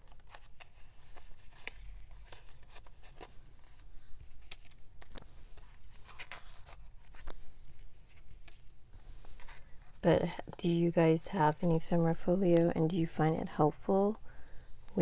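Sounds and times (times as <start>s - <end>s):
paper and plastic pockets rustling: 0.0s - 10.6s.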